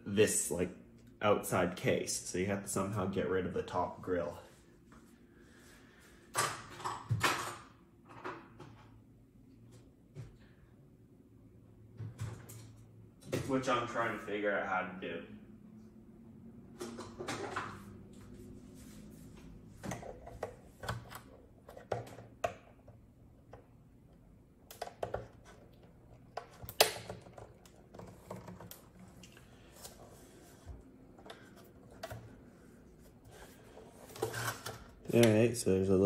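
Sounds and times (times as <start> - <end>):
plastic clicks and scrapes: 24.7 - 32.4.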